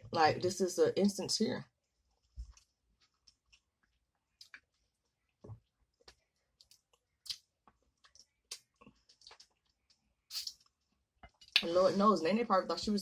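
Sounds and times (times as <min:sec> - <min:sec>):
chewing and wet mouth clicks: 0:02.4 - 0:05.2, 0:06.0 - 0:11.7.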